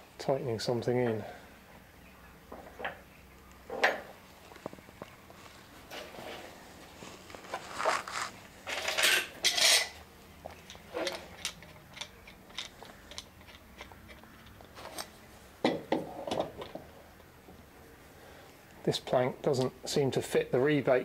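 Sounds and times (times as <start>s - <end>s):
metal clamps clinking and rattling: 8.6s - 10.0s, 10.7s - 14.2s.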